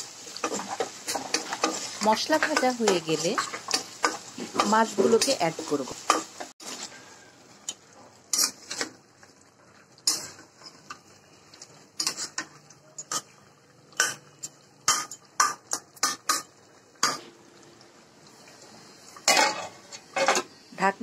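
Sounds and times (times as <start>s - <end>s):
spatula scraping metal pot: 8.3s - 8.9s.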